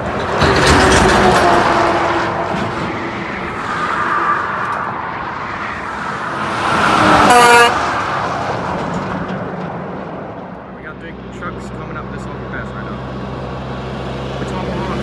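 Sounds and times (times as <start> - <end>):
heavy trucks passing: 0.0 - 15.0
truck horn blast: 7.1 - 7.9.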